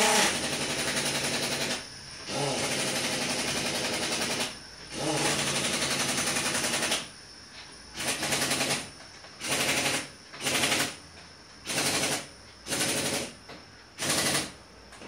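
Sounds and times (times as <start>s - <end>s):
power tool hammering: 0.0s - 7.0s.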